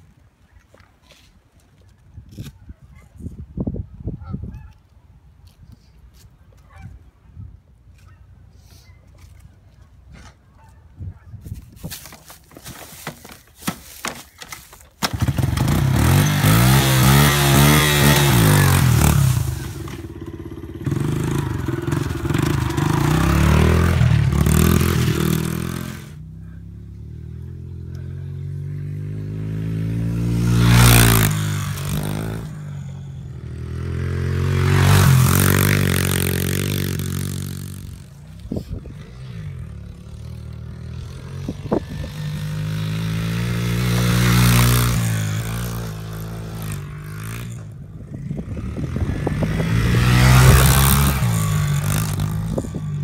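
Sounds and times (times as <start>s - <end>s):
pit bike engine kickstarting: 14.4s - 23.5s
pit bike passing by: 15.0s - 53.0s
engine revving: 15.1s - 26.2s, 27.2s - 38.0s, 39.0s - 53.0s.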